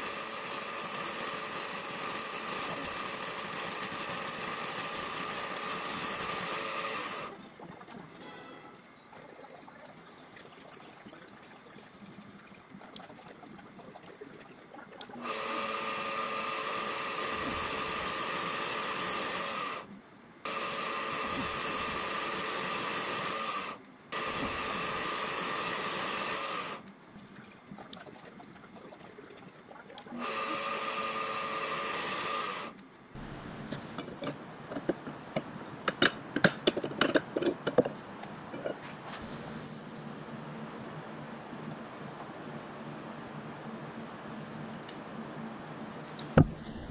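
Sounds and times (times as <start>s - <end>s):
milling machine spindle whine: 0.0s - 7.5s, 15.2s - 19.9s, 20.5s - 26.9s, 30.1s - 35.4s
sharp clicks and scraping: 33.7s - 39.4s.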